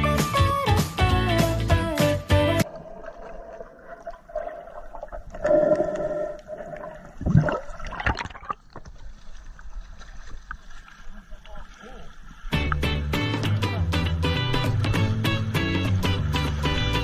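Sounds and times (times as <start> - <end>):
water surge: 2.6 - 12.8
muffled underwater sloshing: 2.6 - 13.0.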